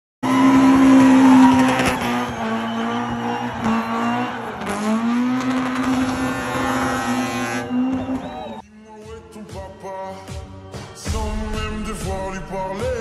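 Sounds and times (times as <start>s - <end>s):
car engine at high revs: 0.2s - 8.6s.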